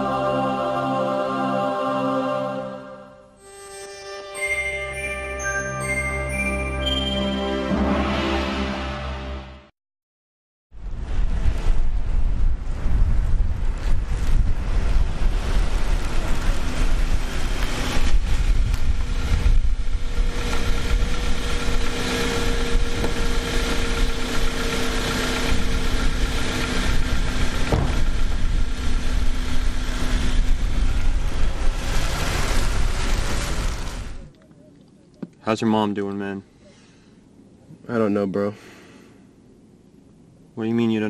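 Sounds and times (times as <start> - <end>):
wind rumbling on microphone: 10.8 - 34.4
steady engine hum: 11.0 - 34.4
car door shutting: 27.6 - 28.2.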